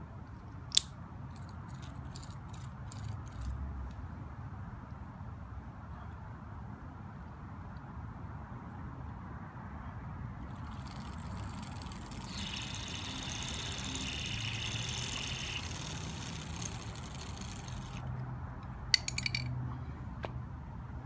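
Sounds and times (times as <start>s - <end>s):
bicycle drivetrain ticking and whirring: 10.5s - 18.1s
bicycle freewheel clicks: 10.5s - 18.1s.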